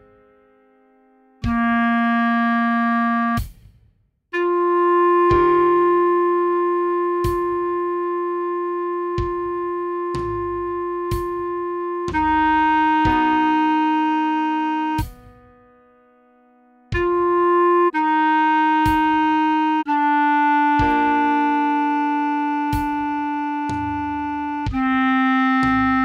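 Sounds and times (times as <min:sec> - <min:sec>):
clarinet playing slow melody: 0:00.0 - 0:03.4, 0:04.4 - 0:26.0
sustained chord tones: 0:05.6 - 0:25.9.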